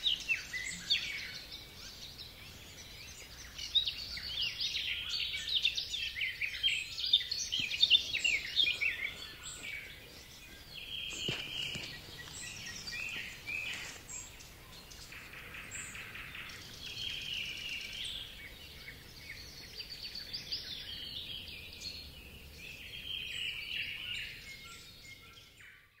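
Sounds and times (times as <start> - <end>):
faint outdoor hush: 0.0 - 20.2
small birds chirping and singing: 0.0 - 26.0.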